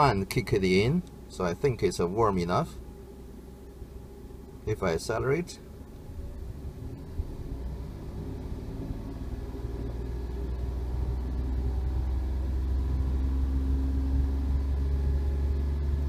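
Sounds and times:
car engine revving: 0:05.7 - 0:16.0.

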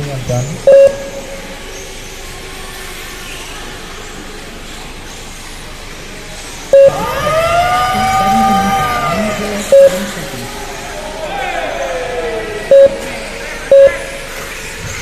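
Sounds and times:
race track background noise: 0:00.0 - 0:15.0
short electronic beep: 0:00.7 - 0:01.5, 0:06.8 - 0:07.0, 0:09.7 - 0:10.1, 0:12.7 - 0:13.0, 0:13.7 - 0:14.3.

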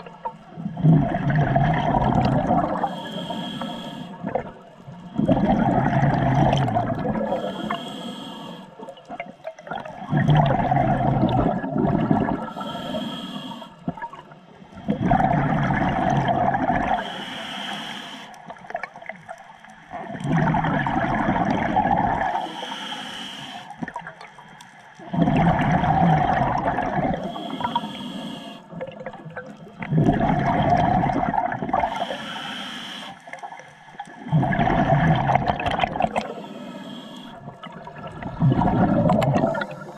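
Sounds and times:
diver exhaling bubbles: 0:00.6 - 0:03.6, 0:04.2 - 0:07.9, 0:09.7 - 0:13.2, 0:14.8 - 0:17.1, 0:20.0 - 0:22.4, 0:25.1 - 0:32.2, 0:34.1 - 0:36.6, 0:37.2 - 0:39.9
regulator hissing inhale: 0:02.8 - 0:04.3, 0:07.2 - 0:08.8, 0:12.4 - 0:13.9, 0:16.9 - 0:18.6, 0:22.3 - 0:23.8, 0:27.2 - 0:28.8, 0:31.8 - 0:33.7, 0:36.1 - 0:37.4.

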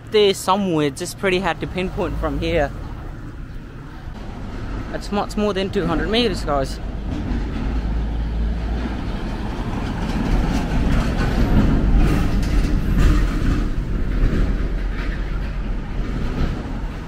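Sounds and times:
road traffic rumble: 0:00.0 - 0:17.0.

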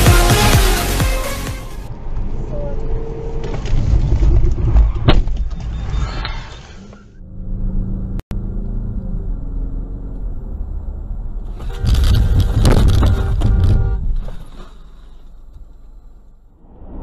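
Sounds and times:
muffled car drone on highway: 0:01.8 - 0:04.7, 0:15.6 - 0:17.0
heavy low rumble: 0:16.4 - 0:17.0.

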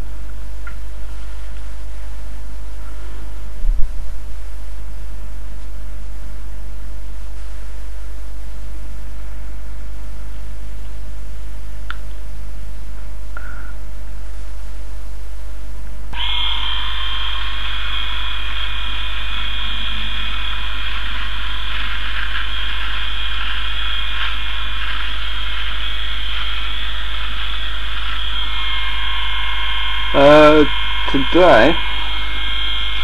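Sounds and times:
electric toothbrush buzzing: 0:16.2 - 0:33.0.

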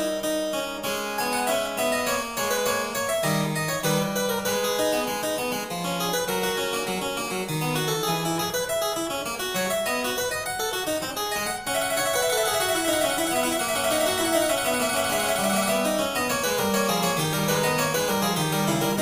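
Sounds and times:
keyboard music with running notes: 0:00.0 - 0:19.0.

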